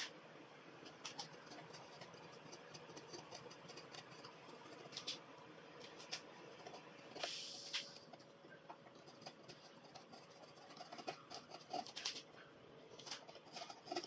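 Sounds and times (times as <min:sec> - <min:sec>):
chisel scraping wood: 0:08.9 - 0:12.2, 0:13.0 - 0:14.0.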